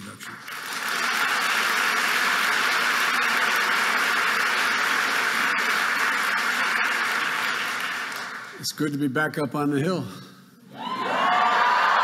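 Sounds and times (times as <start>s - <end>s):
large audience applauding: 0.0s - 8.6s, 10.8s - 12.0s.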